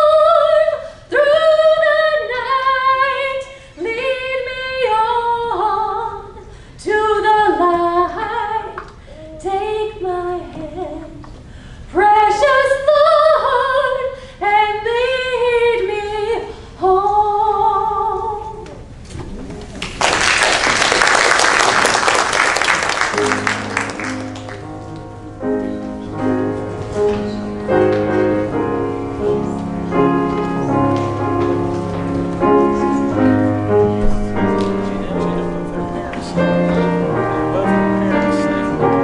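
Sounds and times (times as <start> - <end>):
applause: 19.8 - 24.7.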